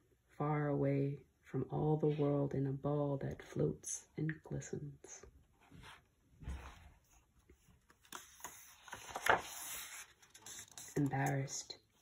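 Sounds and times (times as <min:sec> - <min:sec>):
book page turning: 0:05.7 - 0:12.0.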